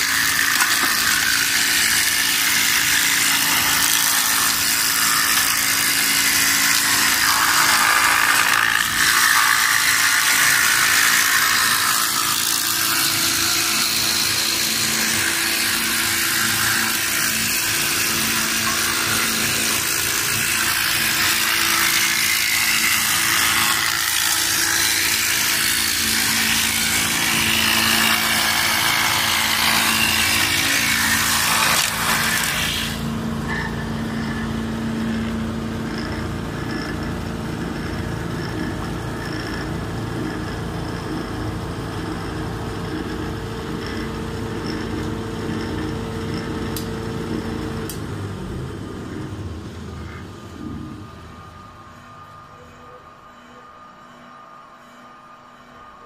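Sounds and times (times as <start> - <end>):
sanding machine grinding hiss: 0.0 - 34.4
machine motors humming: 0.0 - 56.0.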